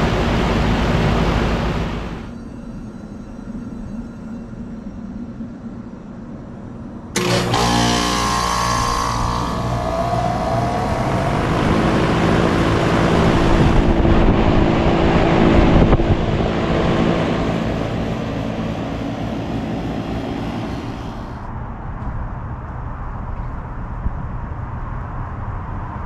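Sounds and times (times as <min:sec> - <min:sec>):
compressor hum: 0:00.0 - 0:03.6, 0:07.0 - 0:21.5
fan whine and noise: 0:00.0 - 0:26.0.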